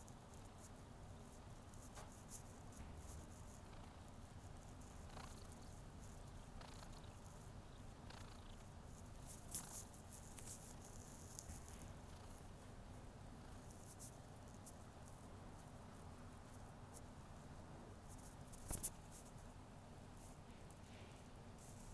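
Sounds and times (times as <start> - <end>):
kitten purring: 0.0 - 15.8.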